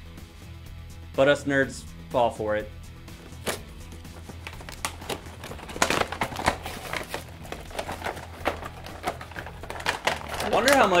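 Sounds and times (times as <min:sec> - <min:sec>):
plastic packaging crinkling: 0:03.3 - 0:11.0.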